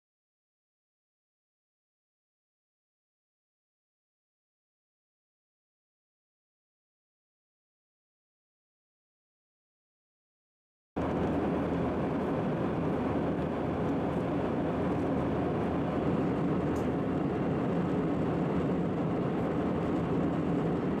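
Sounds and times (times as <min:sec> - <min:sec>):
aircraft cabin engine and air noise: 0:11.0 - 0:21.0.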